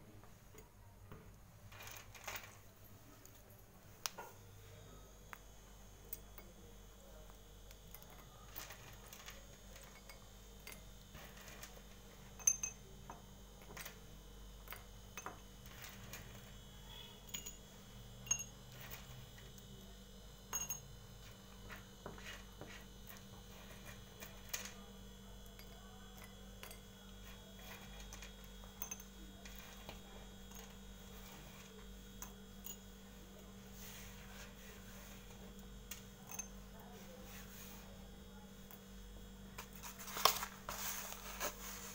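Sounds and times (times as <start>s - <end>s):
pencil pieces clinking into clay lamps: 7.8s - 14.0s, 17.2s - 17.7s.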